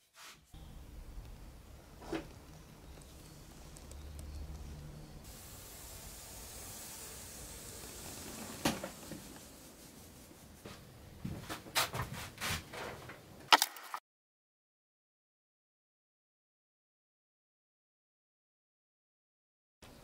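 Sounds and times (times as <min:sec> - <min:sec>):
steady hiss: 0:00.1 - 0:11.2.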